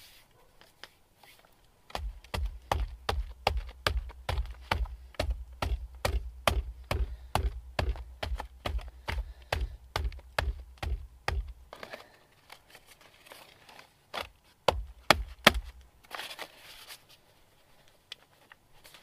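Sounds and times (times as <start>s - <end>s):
hands patting dough: 1.9s - 11.7s, 14.6s - 15.8s
foil and plastic bag crinkling: 11.7s - 17.3s.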